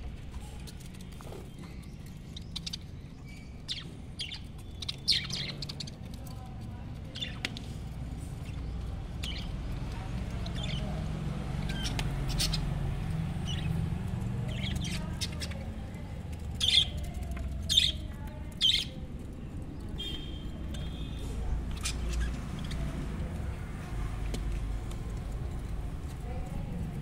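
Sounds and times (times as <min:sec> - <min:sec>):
budgerigars chirping and squawking: 0:00.7 - 0:06.1, 0:07.0 - 0:19.0, 0:20.0 - 0:23.2.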